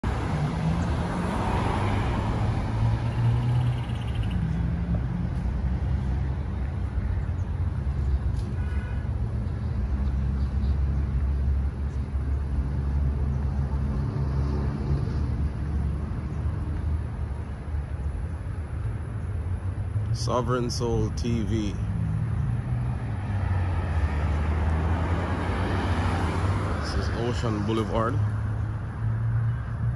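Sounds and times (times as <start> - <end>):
road traffic rumble: 0.0 - 29.9
car driving past: 0.1 - 3.9, 21.9 - 29.5.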